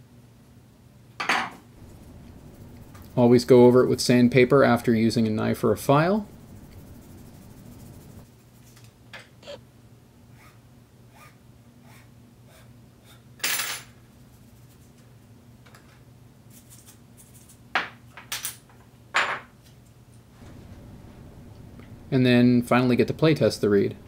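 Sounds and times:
faint low hum: 1.7 - 13.2.

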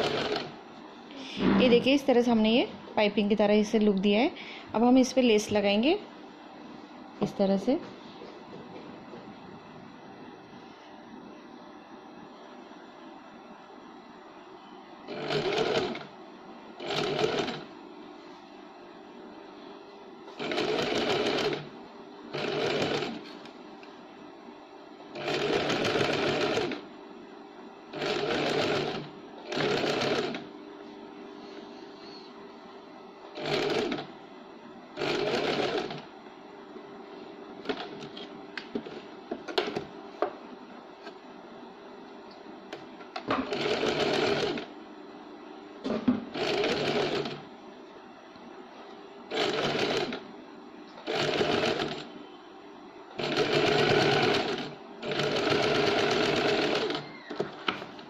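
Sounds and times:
electric sewing machine stitching: 0.0 - 0.6, 15.1 - 16.1, 16.8 - 17.7, 20.3 - 21.7, 22.3 - 23.4, 25.1 - 26.9, 27.9 - 30.5, 33.3 - 34.1, 35.0 - 36.1, 43.3 - 44.7, 46.3 - 47.5, 49.3 - 50.2, 51.0 - 52.1, 53.2 - 57.4.

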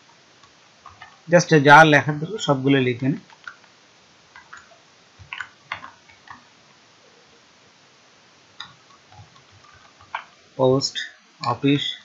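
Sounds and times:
computer keyboard keystrokes: 3.2 - 3.7.

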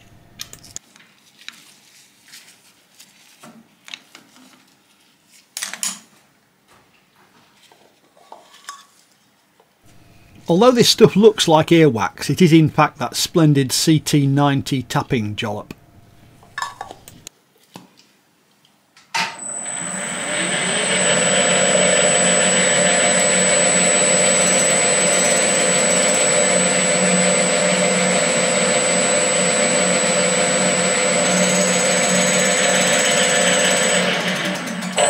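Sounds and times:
spindle motor whining: 19.3 - 35.0.

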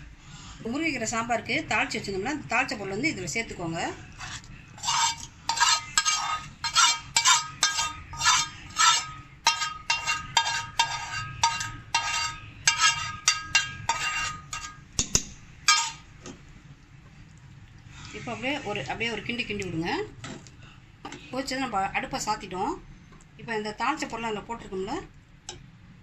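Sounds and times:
metal spoon scraping metal pan: 4.1 - 16.1.

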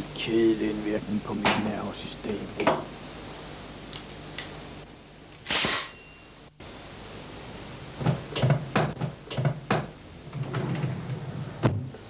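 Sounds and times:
desk drawer sliding open: 10.3 - 12.0.

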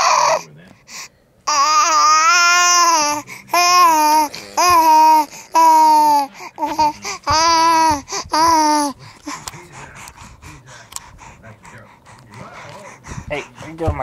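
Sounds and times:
baby babbling and squealing: 0.0 - 0.4, 1.5 - 9.0
rustling and knocks on camera: 4.6 - 5.0, 6.6 - 9.5, 13.0 - 14.0.

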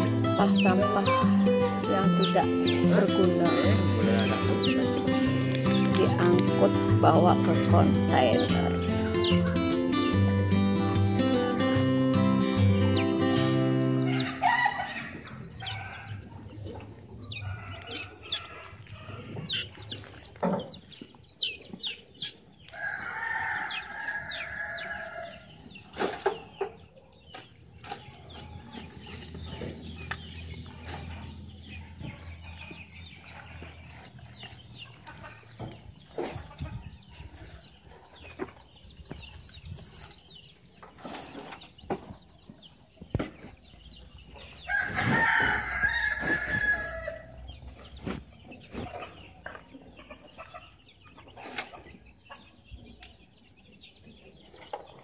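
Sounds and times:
rooster crowing: 14.0 - 16.2, 22.8 - 25.4, 44.7 - 47.4.

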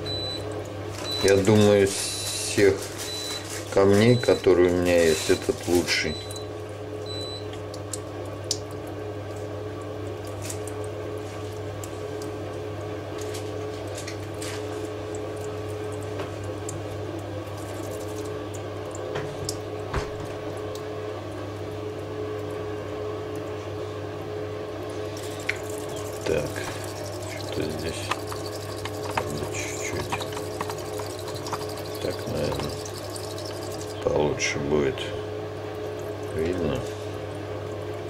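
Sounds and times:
steady low hum: 0.0 - 38.0
razor honed on wet whetstone: 26.0 - 34.0.

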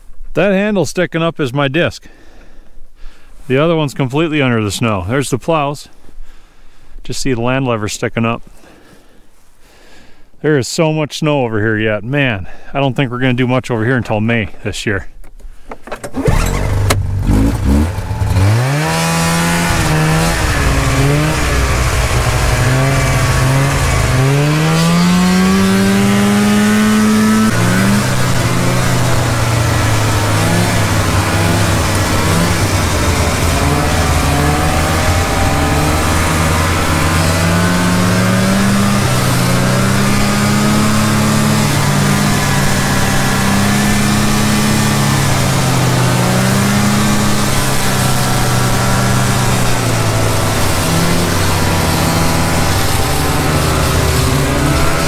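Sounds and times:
snowmobile engine accelerating: 16.2 - 55.0.

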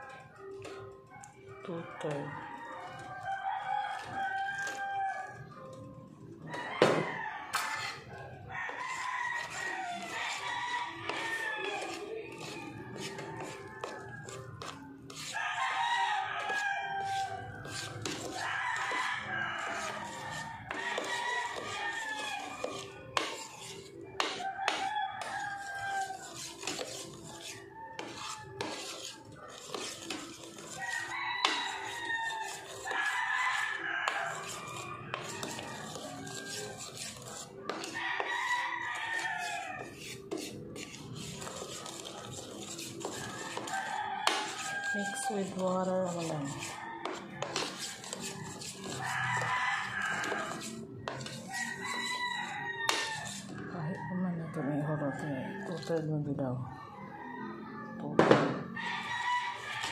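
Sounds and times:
metal spoon stirring in plastic bowl: 0.0 - 57.0, 58.8 - 59.9.

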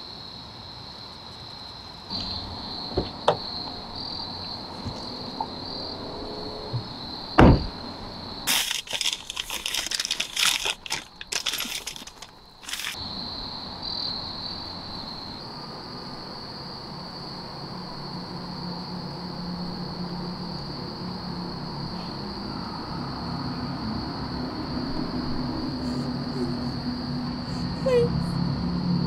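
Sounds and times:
crickets chirping: 0.0 - 29.0
heavy thump: 6.7 - 7.8
dense crackling and rustling: 8.5 - 13.0.

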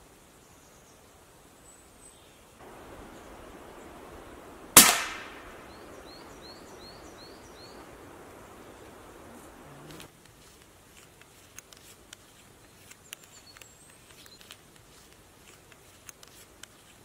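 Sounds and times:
air rifle shot: 4.7 - 6.2.

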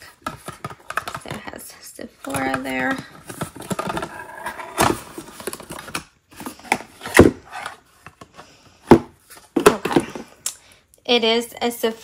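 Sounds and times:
cardboard packaging rustling: 2.2 - 8.4.

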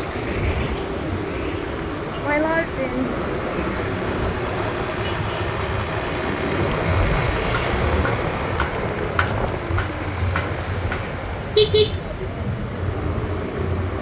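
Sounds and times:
city traffic: 0.0 - 14.0
motorcycle engine and tyres: 3.5 - 14.0.

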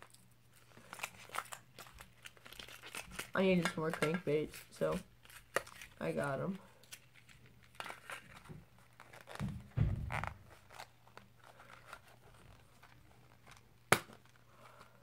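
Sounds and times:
plastic packaging crinkling: 0.0 - 15.0
dull bumps: 9.4 - 10.5.

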